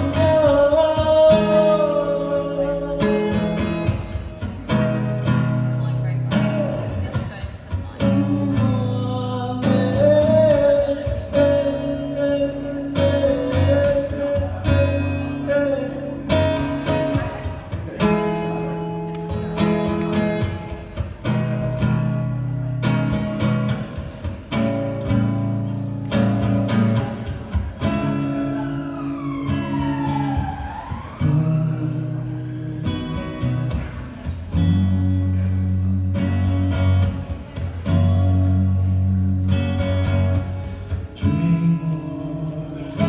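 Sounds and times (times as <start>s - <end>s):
man singing: 0.0s - 4.2s, 6.3s - 18.5s, 27.0s - 43.0s
acoustic guitar strumming: 0.0s - 43.0s.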